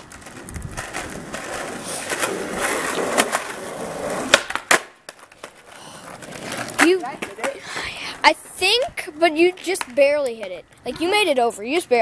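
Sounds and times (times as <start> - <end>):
skateboard clacks: 0.0 - 8.0, 8.7 - 12.0
skateboard wheels rolling on concrete: 0.0 - 12.0.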